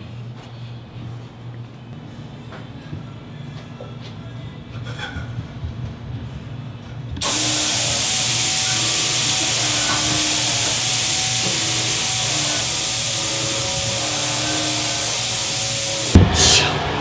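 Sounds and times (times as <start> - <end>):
spray nozzles hissing: 7.2 - 17.0.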